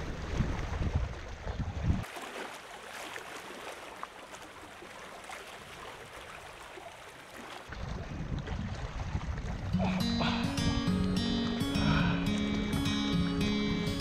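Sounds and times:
seawater sloshing and trickling: 0.0 - 9.9.

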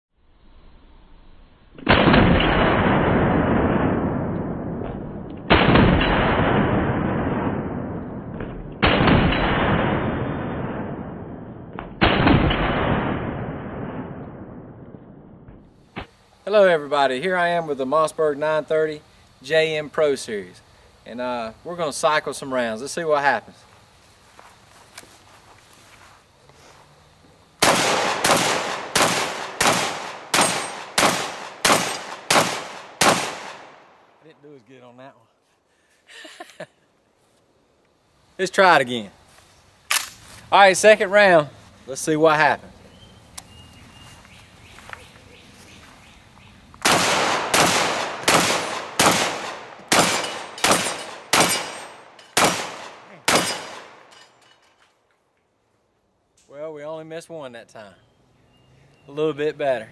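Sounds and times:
shotgun shots: 1.8 - 14.6, 27.6 - 34.0, 46.8 - 54.1.

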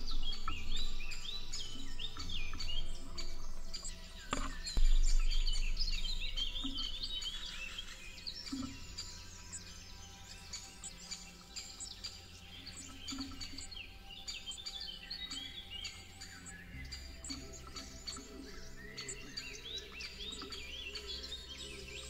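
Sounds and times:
low rumble: 0.0 - 10.3
birds chirping and singing: 0.0 - 22.0.

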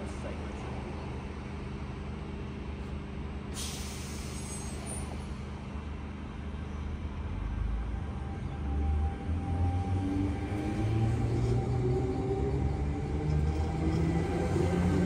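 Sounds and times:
air brakes hissing: 3.5 - 5.3
vehicle humming: 7.0 - 15.0.

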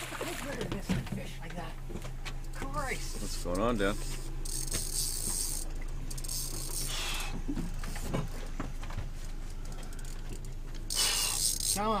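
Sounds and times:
steady low hum: 0.0 - 12.0
fishing reel ratchet clicking: 3.5 - 8.0, 9.4 - 12.0.

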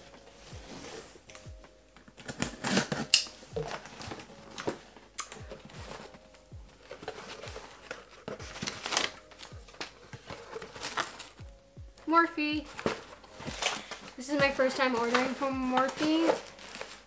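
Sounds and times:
plastic packing crinkling: 0.0 - 11.4, 12.7 - 17.0
packing tape slit and torn: 1.4 - 5.4.

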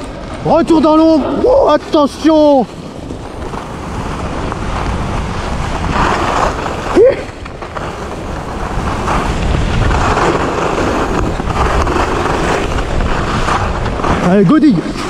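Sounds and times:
skis scraping over snow: 0.0 - 15.0
wind buffeting microphone: 0.0 - 15.0.

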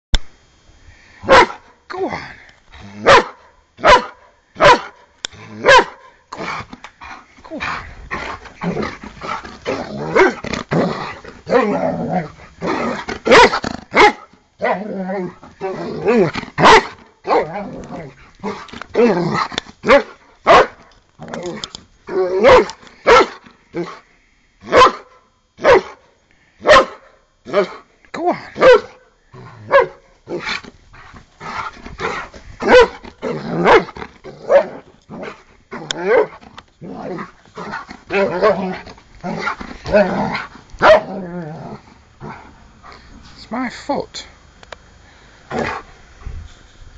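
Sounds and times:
dog barking: 1.3 - 1.6, 3.0 - 5.0, 5.6 - 6.0, 13.3 - 14.3, 16.6 - 17.5, 19.9 - 20.8, 22.4 - 23.4, 24.7 - 26.0, 26.6 - 27.0, 28.6 - 29.0, 29.7 - 30.0, 32.6 - 33.0, 40.8 - 41.1
dog growling: 5.4 - 20.1, 31.4 - 42.6.

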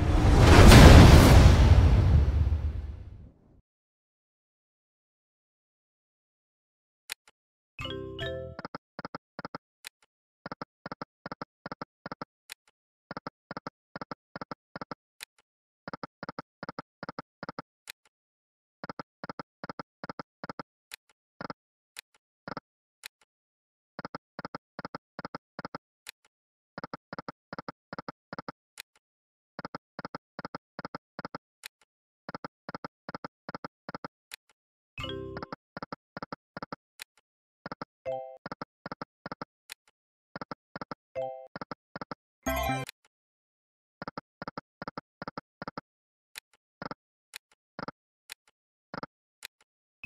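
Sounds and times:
synthesized slot game beeps: 42.5 - 42.9.

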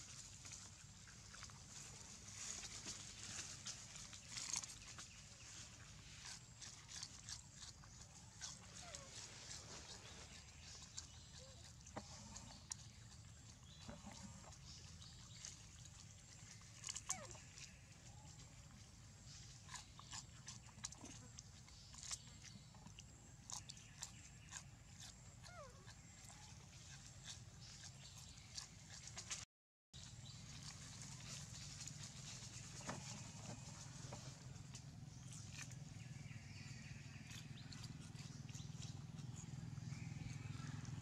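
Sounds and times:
rustling in dry leaves: 0.0 - 7.3, 8.6 - 10.9, 30.0 - 35.5
monkeys chewing food: 4.3 - 29.4.

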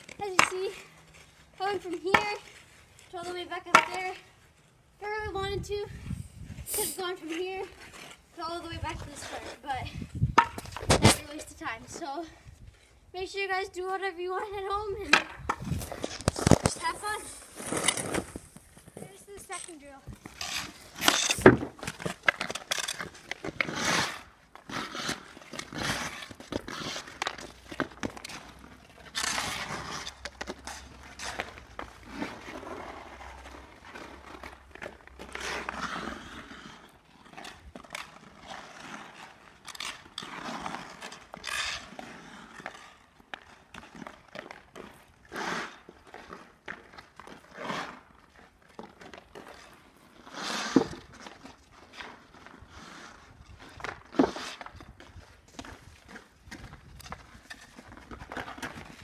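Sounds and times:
skate blades scraping ice: 0.0 - 59.0
hockey stick clicking puck: 3.7 - 4.0.

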